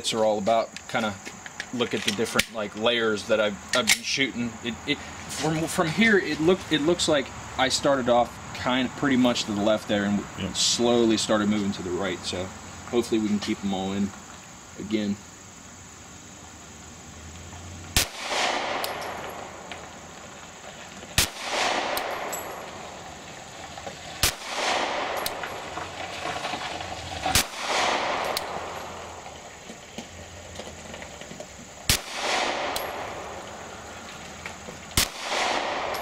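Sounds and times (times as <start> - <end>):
pistol shots with echo: 18.0 - 19.7, 21.2 - 22.7, 24.2 - 25.5, 27.3 - 28.8, 31.9 - 33.4, 35.0 - 36.0.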